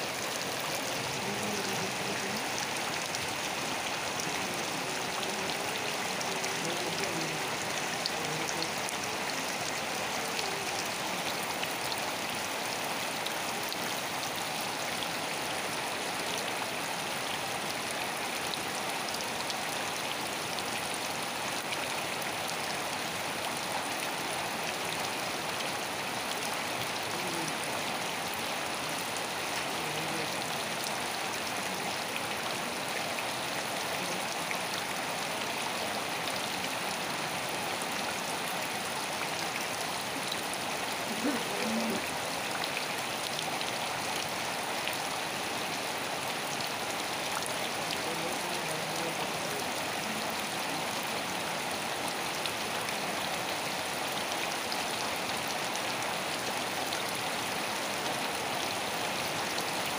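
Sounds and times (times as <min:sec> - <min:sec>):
raindrops pattering: 0:00.0 - 0:55.4
steady rain hiss: 0:00.0 - 0:59.9.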